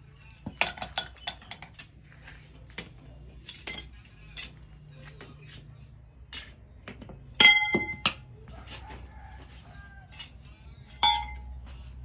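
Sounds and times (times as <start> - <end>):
metal pieces clinking and clanking: 0.6 - 2.0, 2.7 - 4.6, 10.1 - 11.5.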